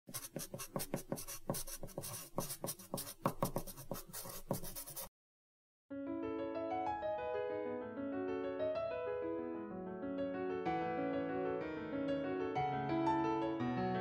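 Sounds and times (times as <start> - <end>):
pencil scratching on paper: 0.1 - 5.1
piano music: 5.9 - 14.0.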